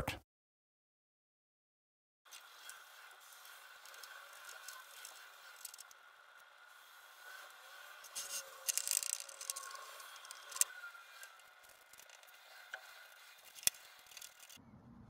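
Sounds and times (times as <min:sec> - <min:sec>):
foam brush scraping plastic: 0:02.3 - 0:06.0, 0:06.6 - 0:14.6.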